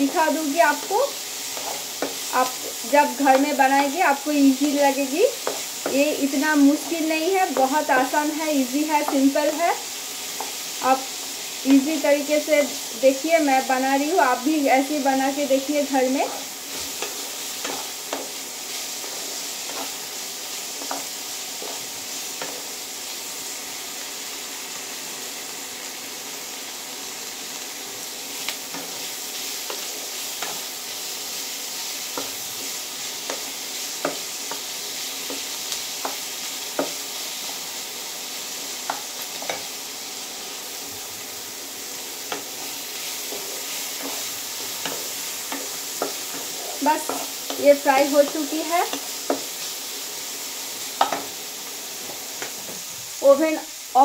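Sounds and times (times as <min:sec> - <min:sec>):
spatula scraping and tapping pan: 0:00.0 - 0:03.7, 0:05.3 - 0:08.2, 0:10.3 - 0:10.6, 0:16.2 - 0:22.7, 0:28.4 - 0:30.8, 0:32.1 - 0:37.2, 0:38.8 - 0:39.7, 0:42.2 - 0:49.7, 0:50.9 - 0:51.4
vegetables sizzling in oil: 0:00.0 - 0:54.0.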